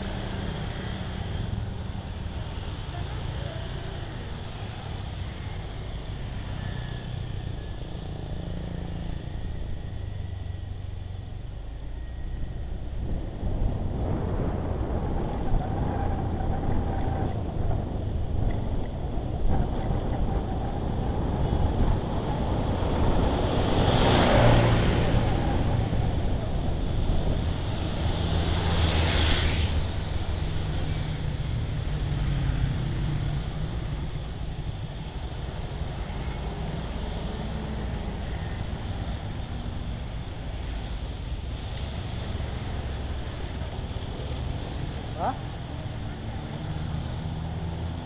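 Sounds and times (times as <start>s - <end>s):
wind rushing over microphone: 9.2s - 48.0s
vehicle passing close by: 21.2s - 34.3s.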